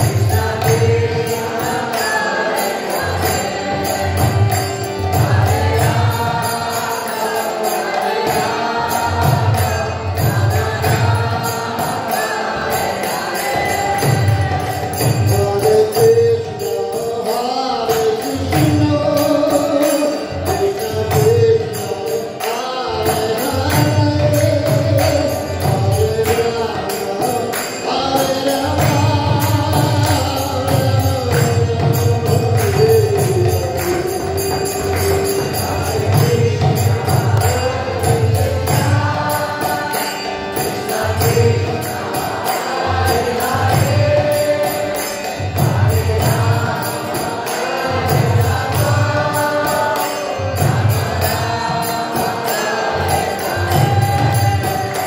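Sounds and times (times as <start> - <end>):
devotional chant singing: 0.0 - 55.0
jingling percussion: 0.0 - 55.0.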